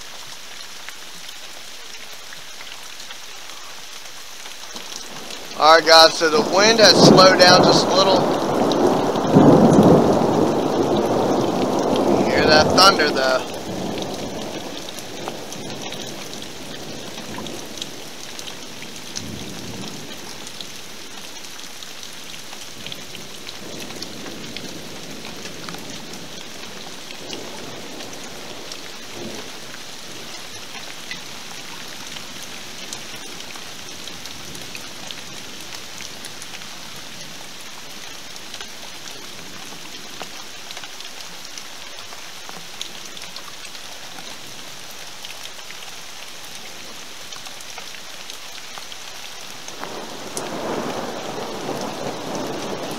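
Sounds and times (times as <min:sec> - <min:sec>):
steady rain falling: 0:00.0 - 0:52.9
faint thunder rumbles: 0:04.8 - 0:38.0, 0:49.7 - 0:52.9.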